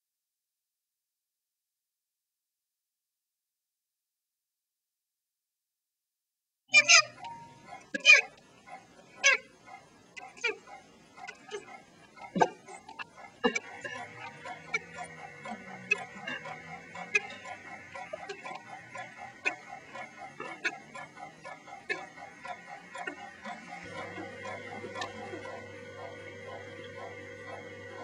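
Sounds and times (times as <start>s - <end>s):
sharp ticks: 9.7s - 28.0s.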